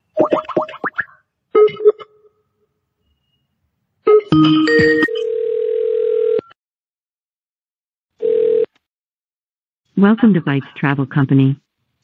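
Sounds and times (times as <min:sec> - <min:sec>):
phone ringing tone: 0:04.1 - 0:06.6, 0:08.2 - 0:08.7.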